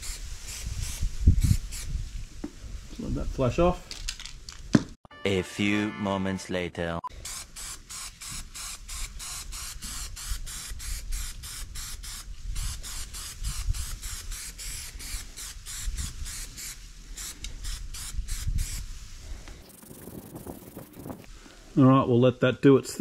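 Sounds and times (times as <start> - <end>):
aerosol spray can hissing: 7.2 - 18.8.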